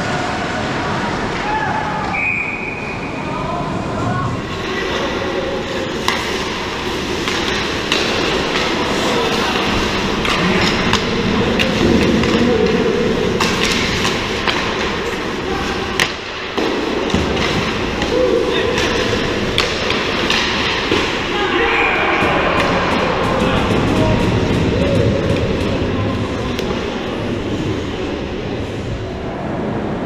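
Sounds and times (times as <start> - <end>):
skate blades scraping ice: 4.5 - 21.2
hockey sticks and puck clacking: 4.6 - 28.3.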